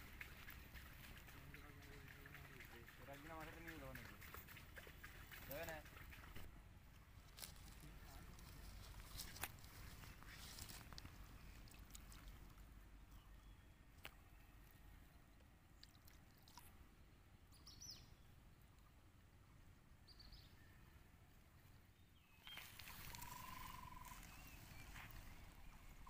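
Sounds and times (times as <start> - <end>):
outdoor ambience: 0.0 - 26.0
faint bird chirps: 17.5 - 18.4, 20.0 - 21.0, 21.6 - 26.0
bird short clear calls: 22.4 - 26.0.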